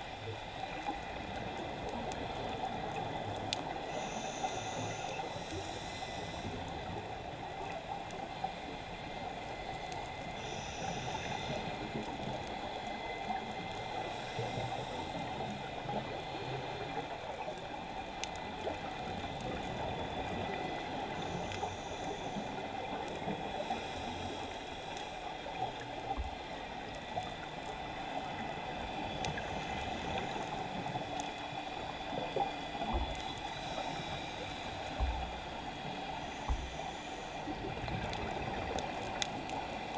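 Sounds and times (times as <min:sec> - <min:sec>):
thin steady whine: 0:00.0 - 0:39.9
faint clicks: 0:00.1 - 0:39.9
muffled underwater rush: 0:26.2 - 0:39.9.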